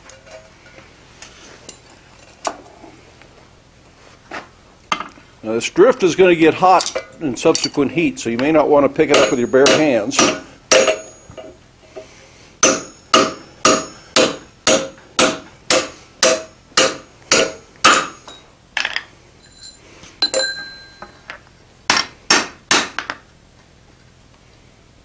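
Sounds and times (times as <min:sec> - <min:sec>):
hammer ringing on metal: 0:09.1 - 0:11.5, 0:12.6 - 0:18.4
metallic clink: 0:09.2 - 0:11.6, 0:17.4 - 0:21.4.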